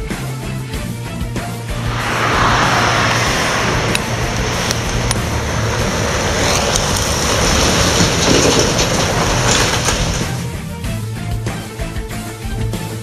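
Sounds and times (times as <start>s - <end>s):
diesel truck engine driving past: 1.7s - 10.4s
sharp rattles: 5.0s - 10.5s.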